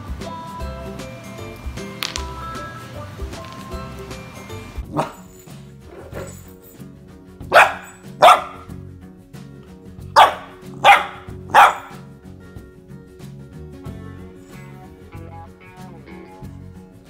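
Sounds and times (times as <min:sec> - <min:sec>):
background music: 0:00.0 - 0:17.0
puppy barking: 0:04.8 - 0:05.3, 0:07.5 - 0:08.7, 0:10.2 - 0:12.0.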